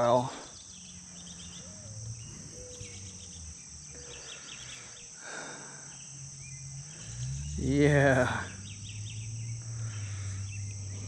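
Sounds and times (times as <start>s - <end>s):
bird chirps: 0.0s - 7.6s, 8.2s - 11.0s
insect drone: 0.0s - 11.0s.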